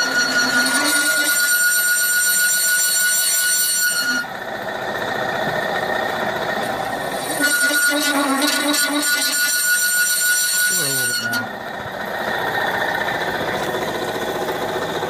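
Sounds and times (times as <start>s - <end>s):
milling machine cutting brass: 0.0s - 4.3s, 6.8s - 11.6s.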